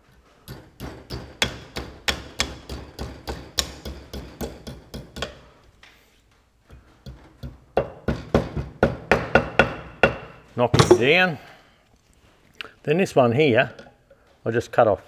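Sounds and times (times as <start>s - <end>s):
hand tool tapping metal: 9.1s - 11.2s.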